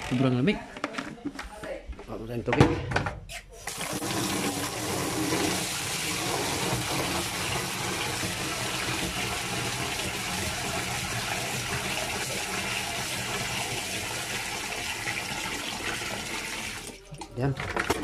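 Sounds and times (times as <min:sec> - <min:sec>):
water running into metal can: 0:03.7 - 0:18.0.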